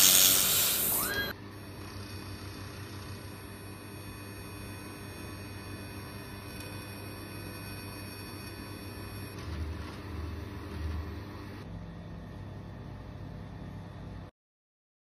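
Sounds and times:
machine whining tones: 0.0s - 11.7s
welding machine humming: 0.0s - 11.7s.

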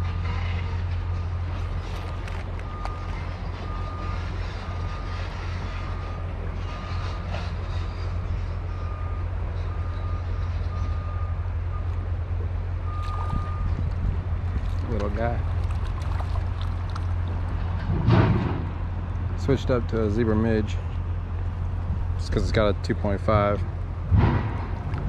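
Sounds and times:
reversing alarm beeping: 2.0s - 12.1s, 12.8s - 13.9s.

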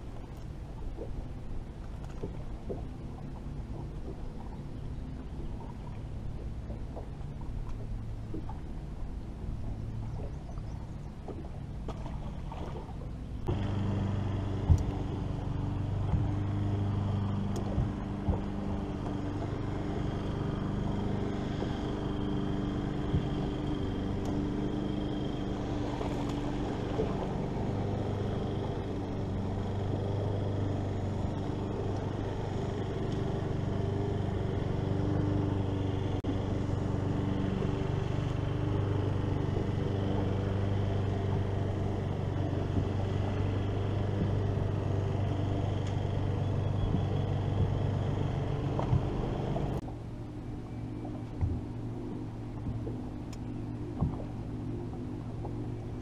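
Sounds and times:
electric motor humming: 13.3s - 56.0s.

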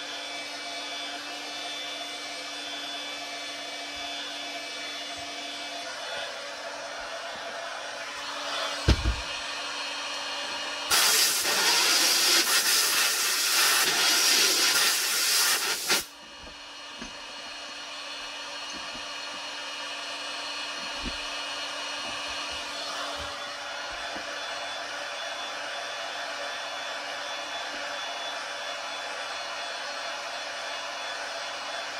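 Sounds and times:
heat gun running: 0.0s - 31.9s
dull thump: 8.8s - 9.3s
compressed-air blow gun hissing: 10.9s - 16.1s.

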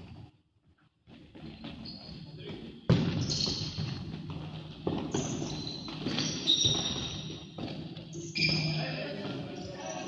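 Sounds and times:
shoes squeaking on court: 1.1s - 10.0s
ball thudding on hall floor: 2.8s - 8.7s.

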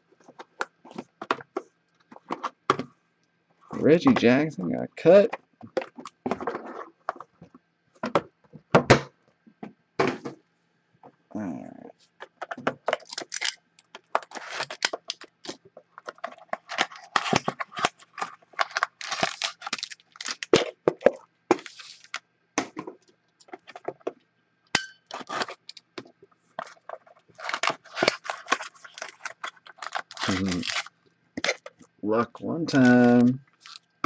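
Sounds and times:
foil wrappers crinkling: 12.8s - 22.2s, 25.1s - 25.8s, 26.5s - 31.8s, 32.7s - 34.0s.

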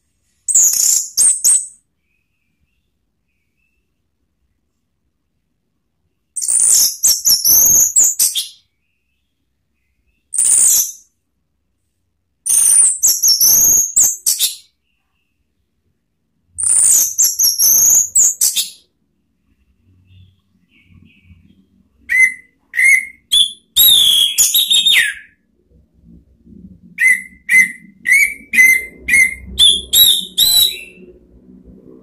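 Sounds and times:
thrush singing whistled notes: 22.0s - 25.4s, 27.0s - 31.2s.

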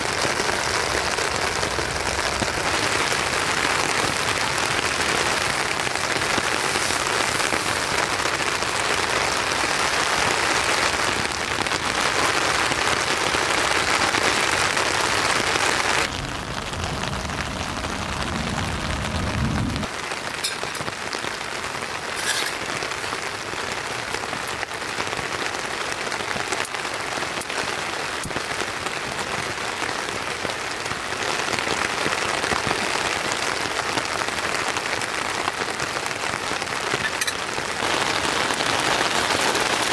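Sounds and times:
rain pattering on a tent: 0.0s - 39.9s
low rumble: 16.1s - 19.9s.

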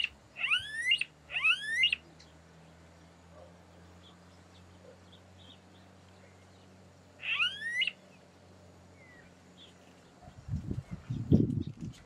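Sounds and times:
bird rising whining call: 0.0s - 2.0s, 7.2s - 8.0s.

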